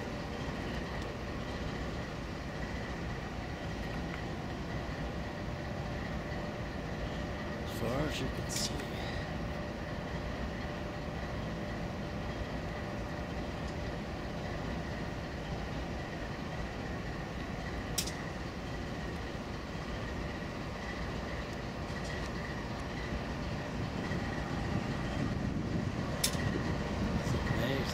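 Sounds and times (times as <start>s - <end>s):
train rumble: 0.0s - 27.9s
sharp click: 18.0s - 18.2s.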